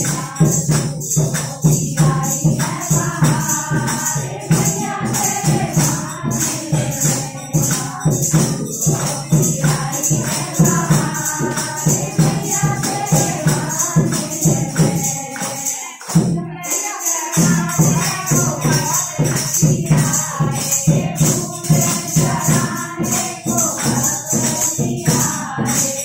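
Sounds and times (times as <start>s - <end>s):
hand clapping: 0.0s - 20.4s
jingling percussion: 0.0s - 26.0s
women singing in unison: 0.0s - 26.0s.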